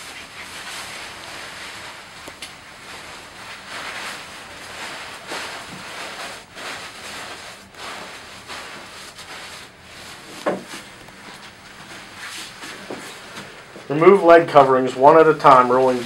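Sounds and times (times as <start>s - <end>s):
plastic gown rustling: 0.0s - 16.0s.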